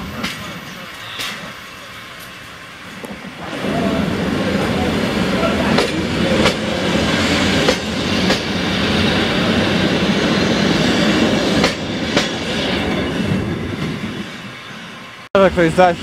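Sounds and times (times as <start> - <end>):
train wheels clacking over rail joints: 0.0 - 1.6, 5.4 - 10.0, 10.7 - 14.2
train rolling rumble: 0.0 - 16.0.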